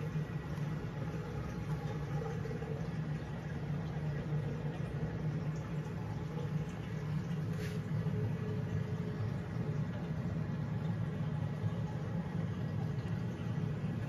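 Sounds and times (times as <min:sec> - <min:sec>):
aquarium pump hum: 0:00.0 - 0:14.0
water circulation hiss: 0:00.0 - 0:14.0.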